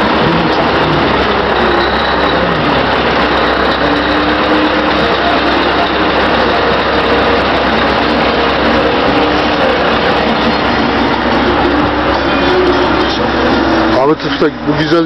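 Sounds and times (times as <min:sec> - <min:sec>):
road and wind noise: 0:00.0 - 0:15.0
truck diesel engine running: 0:00.0 - 0:15.0.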